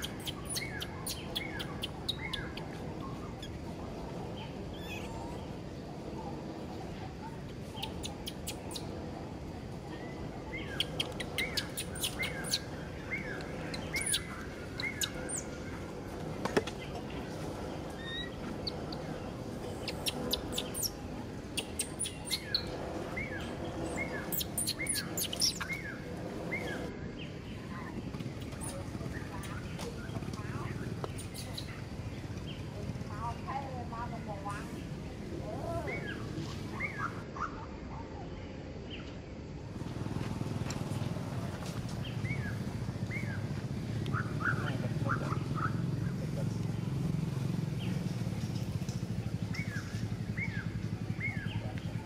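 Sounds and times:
high chirping calls: 0:00.0 - 0:06.1, 0:07.6 - 0:09.3, 0:10.0 - 0:26.9, 0:28.4 - 0:33.5
steady low rumble: 0:00.0 - 0:37.2.

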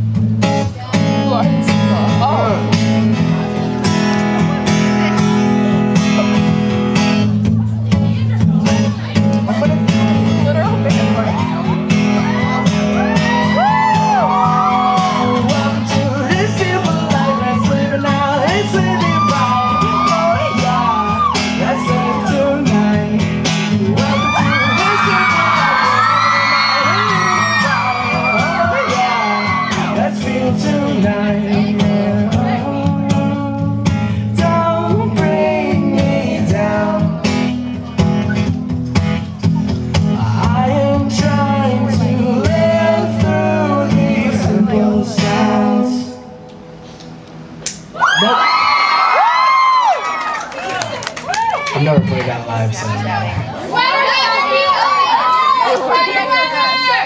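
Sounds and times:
acoustic guitar strumming: 0:00.0 - 0:47.6
people singing: 0:14.8 - 0:37.6, 0:40.2 - 0:46.4.

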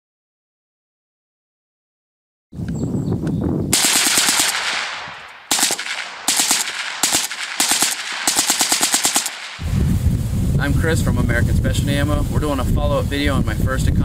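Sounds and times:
suppressed rifle automatic bursts: 0:03.8 - 0:09.6.

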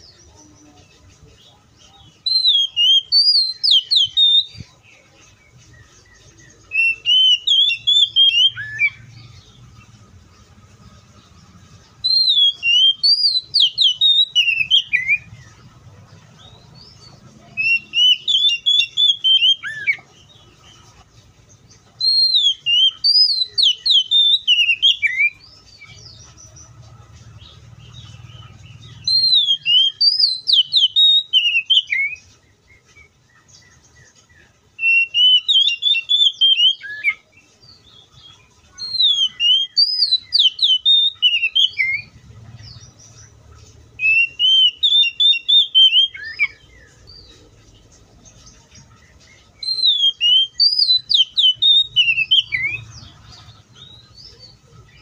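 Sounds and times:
bird singing whistled phrases: 0:02.1 - 0:04.7, 0:06.6 - 0:09.2, 0:12.0 - 0:15.3, 0:17.6 - 0:20.0, 0:22.0 - 0:25.8, 0:28.8 - 0:33.1, 0:34.8 - 0:37.3, 0:38.7 - 0:42.2, 0:44.0 - 0:47.4, 0:49.6 - 0:53.0.

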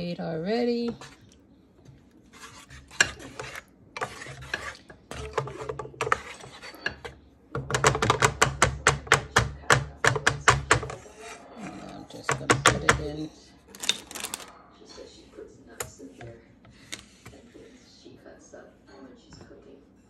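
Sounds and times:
wooden spoon stirring in skillet: 0:00.0 - 0:13.2.

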